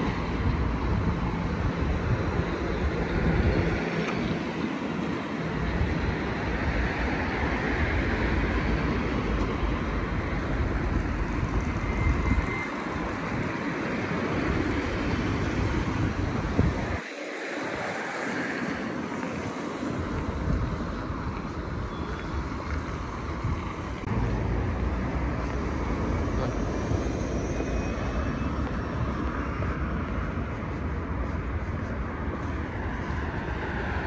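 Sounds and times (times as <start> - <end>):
wind buffeting microphone: 0.0 - 26.2
street traffic: 0.0 - 34.0.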